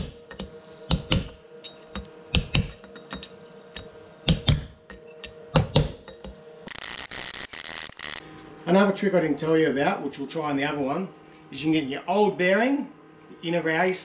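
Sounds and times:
hissing noise: 0:06.7 - 0:08.2.

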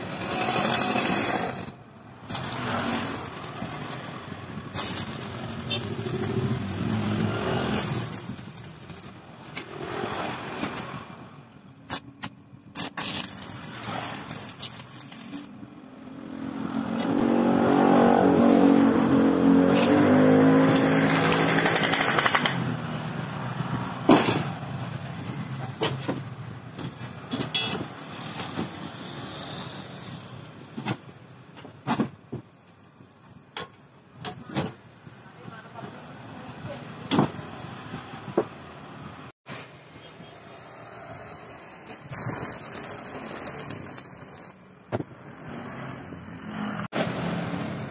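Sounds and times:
vehicle engine revving: 0:16.2 - 0:22.6.

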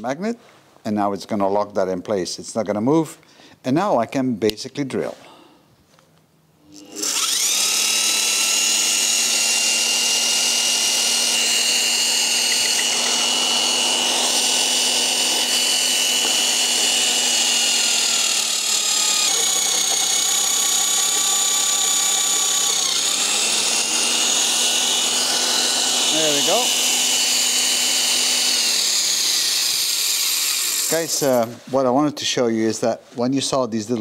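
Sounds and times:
magnetic drill whining through steel: 0:06.6 - 0:31.5.

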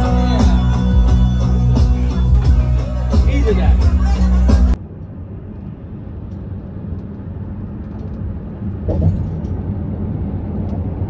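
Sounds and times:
vehicle engine and road noise: 0:00.0 - 0:11.0
vehicle bump: 0:07.9 - 0:09.7.

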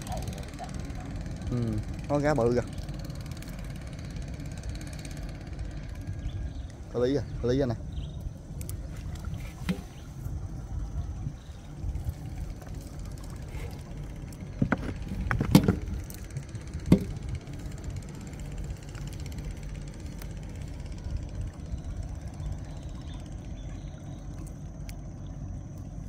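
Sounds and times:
steady low rumble: 0:00.0 - 0:26.0
knocks and thuds on boat: 0:11.9 - 0:18.2.

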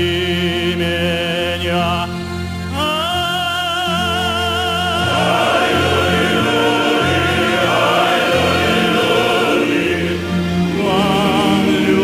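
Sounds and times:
male choir singing: 0:02.8 - 0:12.0.

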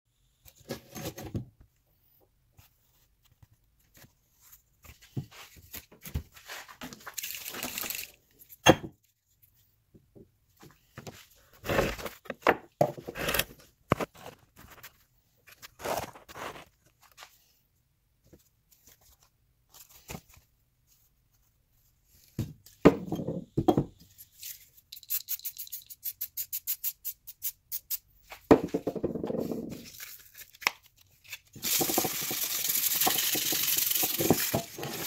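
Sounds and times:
axe head scraping on wood: 0:12.9 - 0:13.6.

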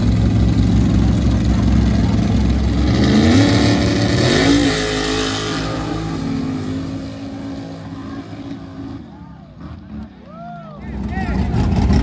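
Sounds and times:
vehicle engine revving hard: 0:02.7 - 0:08.2.

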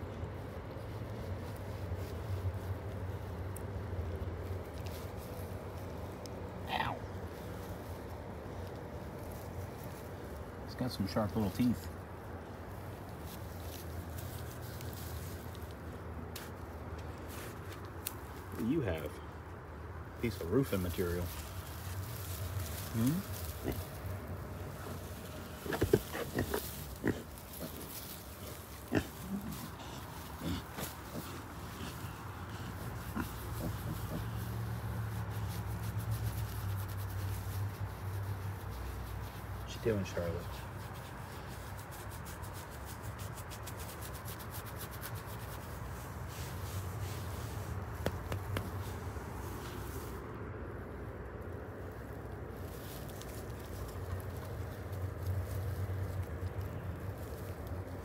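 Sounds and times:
hand scratching bristly coat: 0:00.0 - 0:58.0
pigs grunting: 0:22.9 - 0:24.0, 0:25.6 - 0:34.6.

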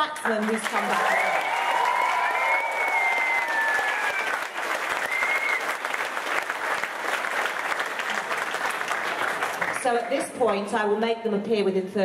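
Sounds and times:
audience clapping: 0:00.0 - 0:10.6.

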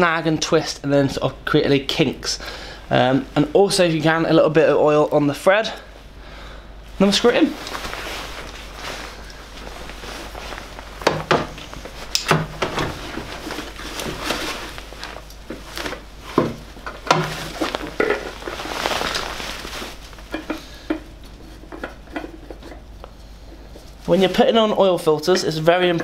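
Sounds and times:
jacket rustling: 0:02.5 - 0:23.0.

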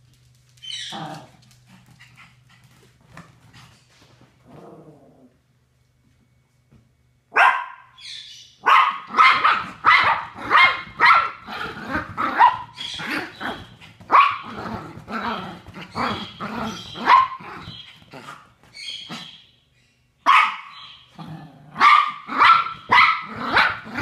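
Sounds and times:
small dog barking: 0:07.3 - 0:08.0, 0:08.6 - 0:11.5, 0:12.2 - 0:12.8, 0:14.1 - 0:14.5, 0:16.8 - 0:17.8, 0:20.2 - 0:20.9, 0:21.8 - 0:24.0.

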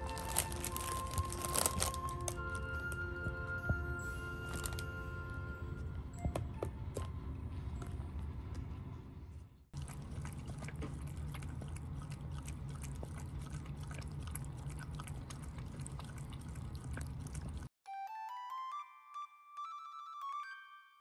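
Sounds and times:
low hum: 0:00.0 - 0:15.6
animals lapping water: 0:09.7 - 0:17.7.

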